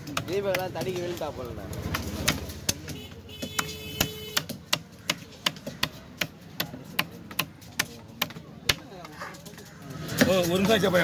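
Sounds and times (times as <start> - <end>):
knife chopping fish on wood: 0.0 - 1.1, 1.8 - 8.9.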